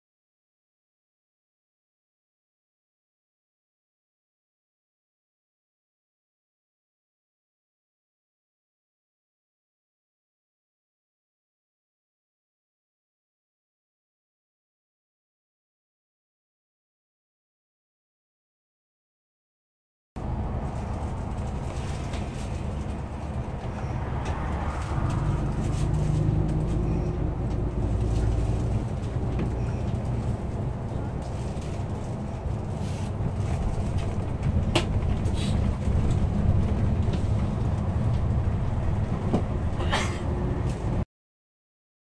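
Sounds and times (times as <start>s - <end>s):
bus engine and road drone: 20.2s - 41.1s.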